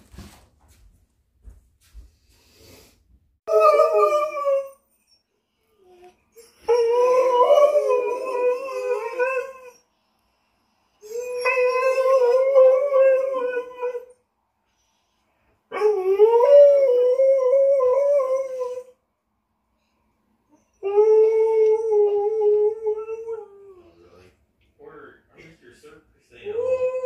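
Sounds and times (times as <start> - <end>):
dog howling: 3.5 - 4.8, 5.8 - 9.8, 11.0 - 14.1, 15.7 - 19.0, 20.7 - 24.0, 26.4 - 27.0.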